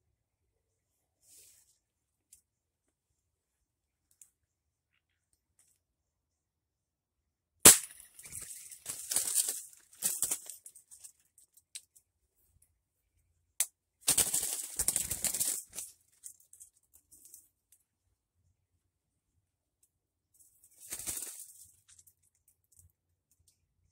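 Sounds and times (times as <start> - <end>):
rustling in branches: 7.9 - 11.3, 14.1 - 16.6, 20.6 - 22.0.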